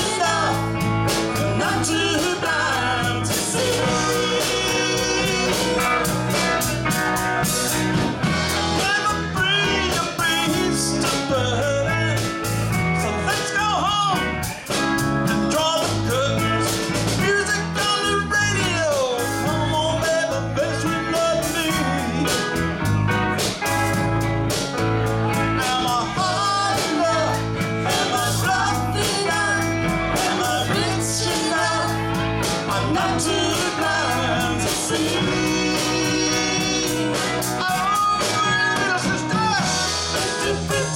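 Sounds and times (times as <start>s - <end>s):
woman singing lead: 0.0s - 7.0s, 25.6s - 40.9s
drums: 0.0s - 40.9s
electric bass: 0.0s - 40.9s
electric guitars: 0.0s - 40.9s
keyboard: 0.0s - 40.9s.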